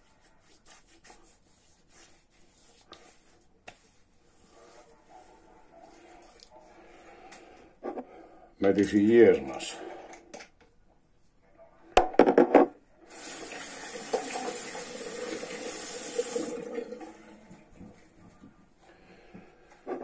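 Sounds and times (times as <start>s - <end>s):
tap running water into basin: 13.1s - 17.9s.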